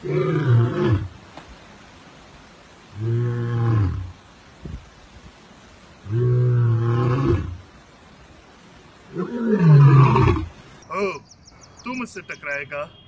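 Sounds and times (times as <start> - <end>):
lion roaring: 0.0 - 1.1, 6.1 - 7.6, 9.1 - 10.5.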